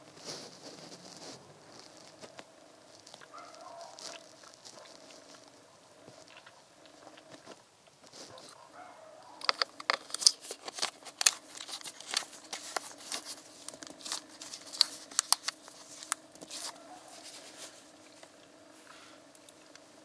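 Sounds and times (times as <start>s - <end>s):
plastic cap clicking and crackling: 9.4s - 17.4s.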